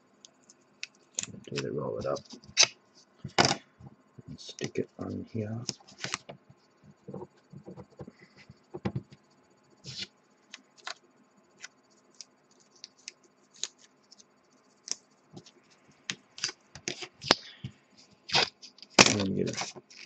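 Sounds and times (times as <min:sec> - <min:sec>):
small clicks and scratches: 0:00.2 - 0:03.5, 0:05.6 - 0:11.0, 0:11.6 - 0:17.4, 0:18.0 - 0:20.0
tape rustling: 0:00.9 - 0:03.6, 0:05.6 - 0:06.4, 0:12.1 - 0:17.4, 0:18.0 - 0:20.0.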